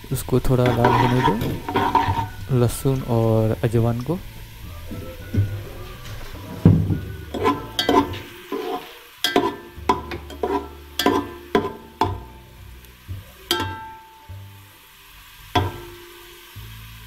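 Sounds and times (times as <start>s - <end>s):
light oil sizzle: 0.0s - 17.0s
metal ladle clinking against pot: 0.6s - 2.4s, 7.3s - 12.3s, 13.5s - 14.1s.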